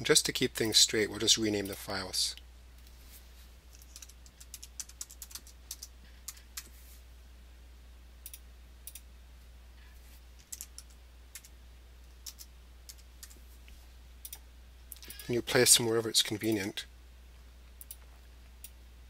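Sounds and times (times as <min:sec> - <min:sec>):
faint low hum: 0:00.0 - 0:19.0
typing on a keyboard: 0:03.8 - 0:06.7, 0:10.4 - 0:11.5, 0:12.2 - 0:13.4.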